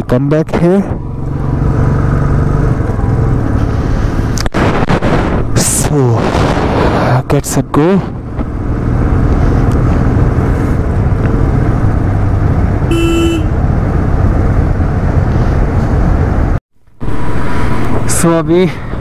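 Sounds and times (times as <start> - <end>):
wind and road noise: 0.0 - 19.0
motorcycle horn: 12.9 - 13.6.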